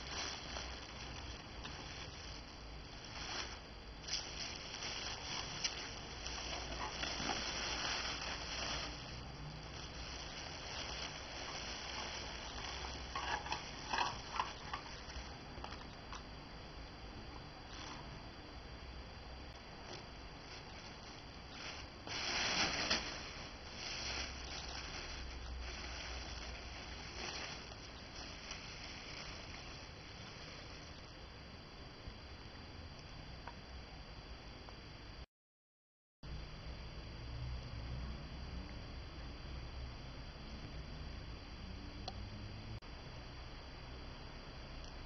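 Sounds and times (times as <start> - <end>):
sharp crackles: 0.0 - 15.4, 19.8 - 31.1
packaging rustling and crinkling: 0.0 - 15.9, 19.8 - 31.1.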